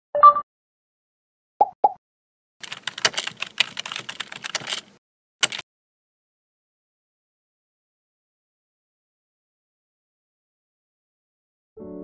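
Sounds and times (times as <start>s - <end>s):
keyboard typing: 2.6s - 5.6s.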